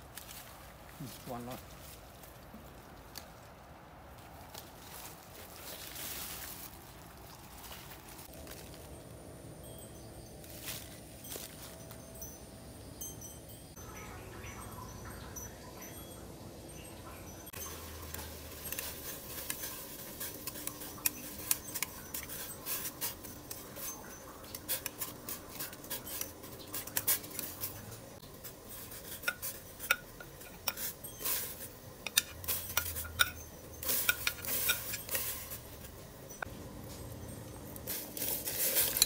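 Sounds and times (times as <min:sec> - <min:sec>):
kitchenware clinking against metal pot: 0:13.1 - 0:39.0.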